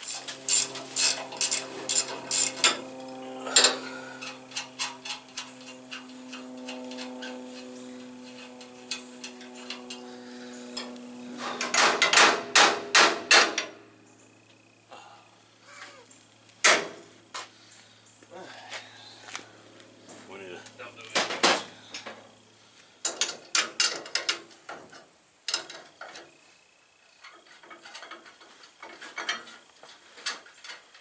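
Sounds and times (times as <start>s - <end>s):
hand ratchet clicking: 0.0s - 2.8s
steady low hum: 0.0s - 30.3s.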